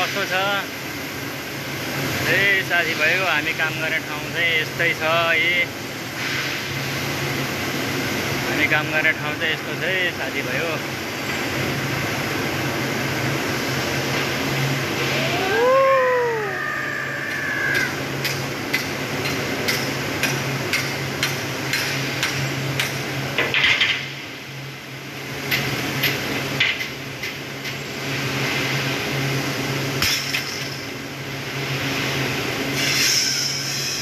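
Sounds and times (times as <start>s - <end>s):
low machine hum: 0.2s - 23.4s.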